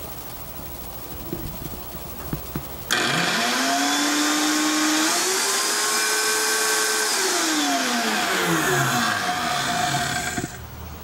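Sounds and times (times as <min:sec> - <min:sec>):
blender motor whining: 0:02.9 - 0:10.6.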